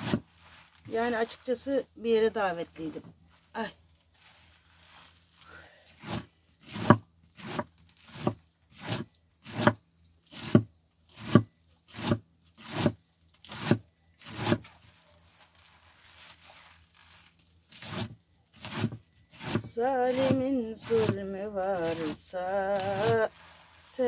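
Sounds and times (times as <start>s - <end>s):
food preparation strokes: 0.0s - 1.8s, 2.8s - 24.0s.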